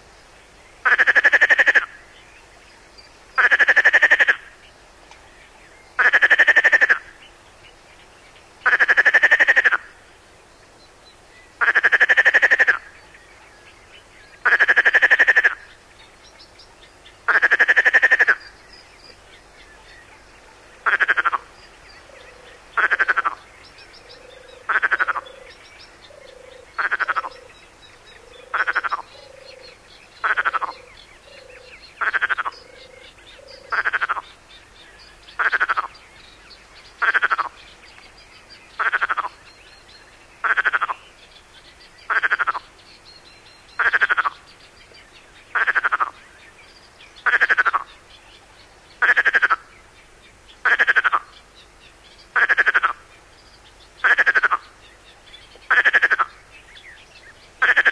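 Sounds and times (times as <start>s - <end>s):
fainter lower frog croaks: 0.8s - 2.0s, 3.4s - 4.6s, 6.0s - 7.1s, 8.6s - 10.0s, 11.6s - 13.0s, 14.4s - 15.8s, 17.3s - 18.6s, 20.8s - 21.5s, 22.1s - 27.6s, 28.2s - 34.4s, 35.4s - 36.0s, 37.0s - 37.6s, 38.8s - 39.4s, 40.4s - 41.1s, 42.1s - 42.7s, 43.8s - 44.4s, 45.5s - 46.2s, 47.2s - 47.9s, 49.0s - 49.7s, 50.6s - 51.4s, 52.4s - 53.1s, 54.0s - 54.8s, 55.6s - 56.4s, 57.6s - 57.9s
frog rasping croak: 0.8s - 2.0s, 3.4s - 4.5s, 6.0s - 7.1s, 8.6s - 10.0s, 11.6s - 12.9s, 14.4s - 15.7s, 17.3s - 18.5s, 20.8s - 21.5s, 22.3s - 23.5s, 24.1s - 25.6s, 26.3s - 27.5s, 28.4s - 34.3s, 35.4s - 35.9s, 37.0s - 37.6s, 38.8s - 39.4s, 40.4s - 41.0s, 42.1s - 42.7s, 43.8s - 44.4s, 45.6s - 46.2s, 47.2s - 47.9s, 49.0s - 49.7s, 50.6s - 51.3s, 52.4s - 53.0s, 54.0s - 54.7s, 55.7s - 56.4s, 57.6s - 57.9s.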